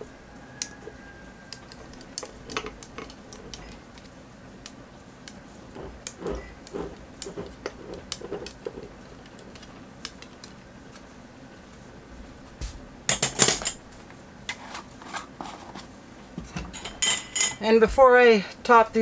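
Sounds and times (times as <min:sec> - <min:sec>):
kitchenware clatter: 0:13.1 - 0:13.8, 0:16.4 - 0:17.7.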